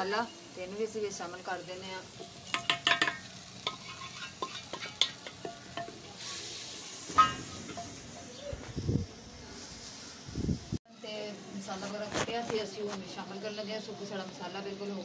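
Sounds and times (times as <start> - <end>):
food sizzling in a pot: 0.0 - 15.0
steel lid clattering: 2.2 - 6.1, 7.0 - 8.4
wooden spoon knocking on pot: 2.5 - 3.3.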